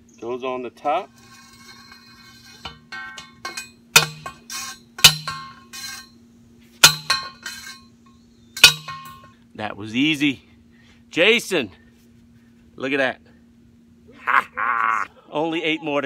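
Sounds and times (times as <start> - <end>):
metallic clangs of post driver: 1.5 - 6.1, 6.8 - 7.9, 8.6 - 9.3.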